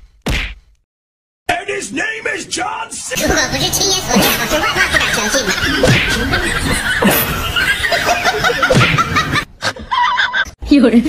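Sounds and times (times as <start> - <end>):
people laughing and snickering: 3.8 - 10.6.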